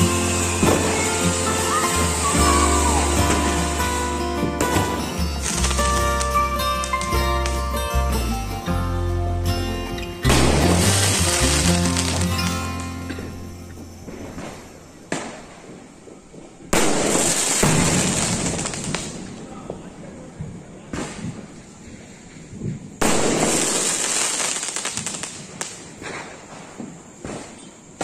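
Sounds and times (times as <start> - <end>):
firework shells bursting: 0.0 - 7.7, 10.2 - 19.5, 23.0 - 28.0
firework crackle: 0.0 - 8.4, 10.0 - 28.0
small firework pops: 10.3 - 21.8, 22.5 - 28.0.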